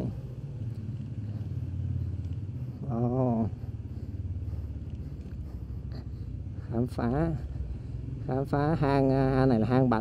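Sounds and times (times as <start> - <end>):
motorcycle engine chugging: 0.0 - 10.0
person making wavering vocal sound: 2.8 - 3.6.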